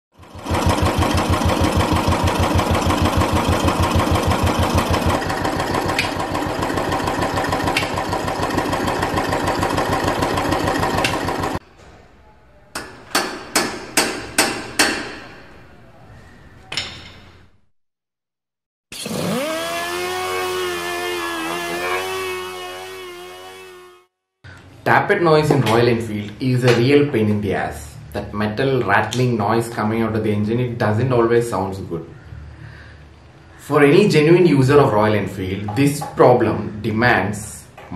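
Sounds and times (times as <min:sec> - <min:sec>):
motorcycle engine idling: 0:00.2 - 0:11.6.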